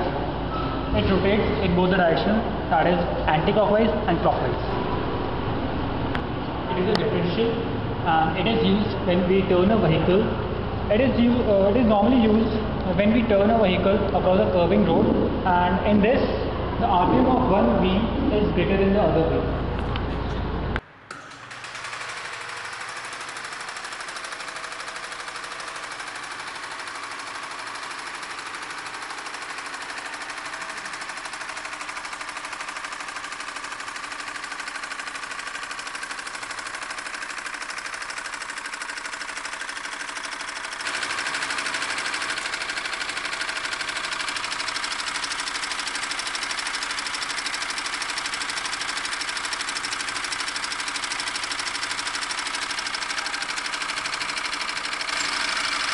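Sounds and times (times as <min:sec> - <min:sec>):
mechanical whirr of turning gears: 0:21.1 - 0:55.9.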